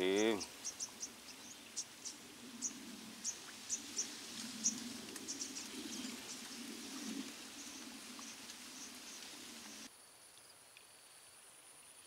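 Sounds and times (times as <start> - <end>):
high chirps of small wildlife: 0.0 - 10.6.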